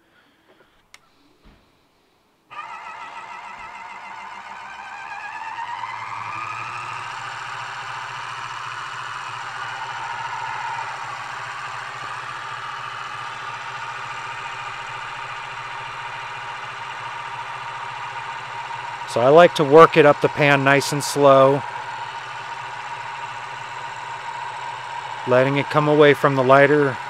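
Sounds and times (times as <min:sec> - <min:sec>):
small electric motor whine: 0:02.5 - 0:27.0.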